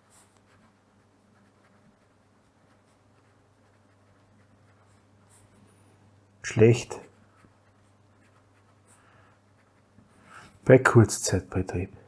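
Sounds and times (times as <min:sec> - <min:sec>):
pen scratching on paper: 0:00.0 - 0:05.7, 0:06.7 - 0:10.6
low steady hum: 0:00.0 - 0:12.0.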